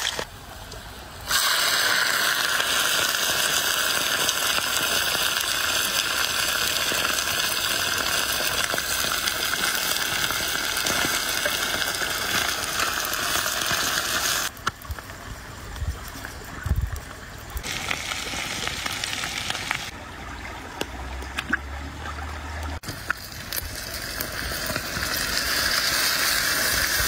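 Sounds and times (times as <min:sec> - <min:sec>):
fish sizzling in hot oil: 0:00.0 - 0:00.3, 0:01.2 - 0:14.7, 0:17.6 - 0:20.0, 0:22.8 - 0:27.0.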